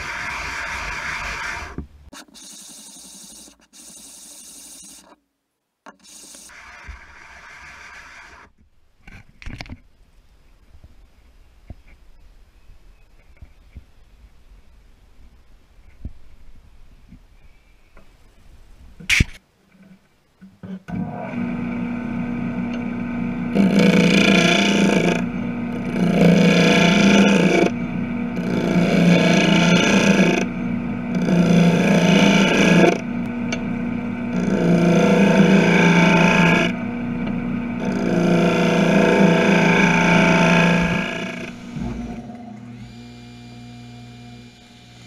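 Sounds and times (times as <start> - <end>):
wood lathe humming: 0.0 - 5.0, 6.0 - 8.4, 21.0 - 45.0
turning tool cutting wood: 0.0 - 5.2, 5.9 - 8.5, 20.9 - 45.0.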